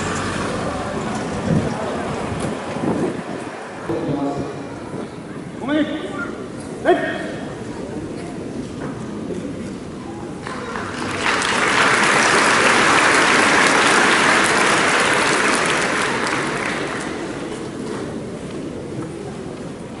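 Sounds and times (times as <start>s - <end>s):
audience applauding: 10.4s - 17.6s.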